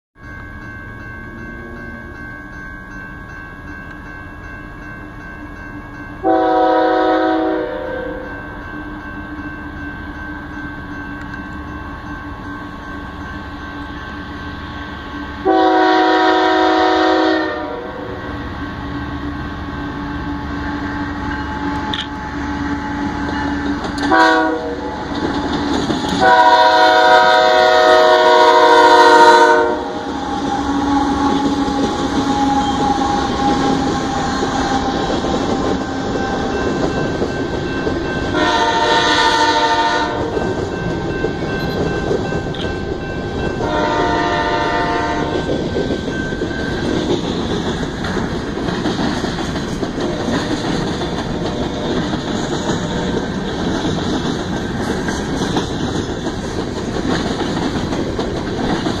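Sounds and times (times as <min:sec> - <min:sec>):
locomotive air horn blasts: 0:06.2 - 0:08.2, 0:15.4 - 0:18.2, 0:24.0 - 0:24.9, 0:26.2 - 0:31.5, 0:38.4 - 0:40.4, 0:43.6 - 0:45.4
locomotive engines rumbling: 0:06.2 - 0:59.0
train wheels clattering: 0:20.5 - 0:59.0.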